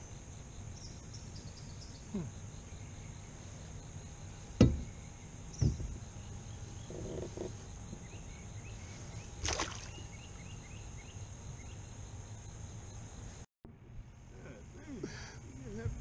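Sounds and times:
insects droning: 0:00.0 - 0:13.5, 0:14.1 - 0:16.0
faint chirps: 0:00.8 - 0:04.0
water splash beside hull: 0:09.4 - 0:10.1.

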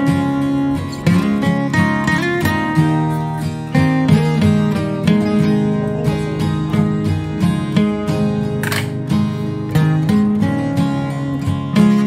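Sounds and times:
strummed acoustic guitar music: 0:00.0 - 0:12.0.

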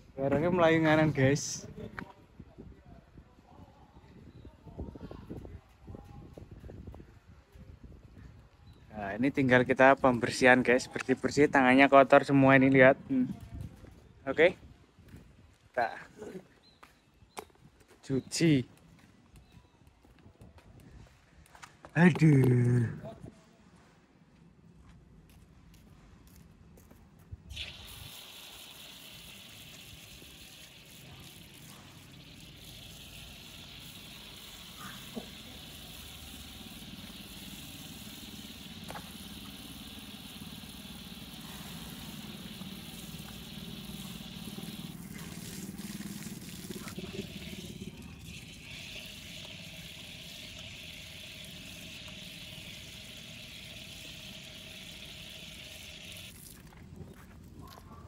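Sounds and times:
water splashing onto concrete: 0:27.5 - 0:56.7.

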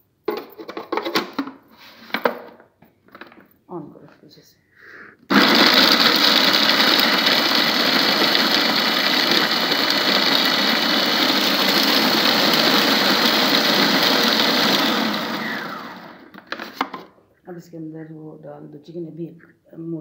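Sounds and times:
food processor chopping: 0:05.3 - 0:17.0.

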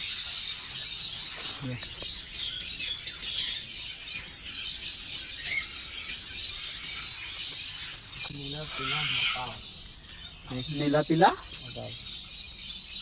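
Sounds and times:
parakeets chattering and chirping: 0:00.0 - 0:13.0
sharp loud parakeet call: 0:08.4 - 0:09.7.

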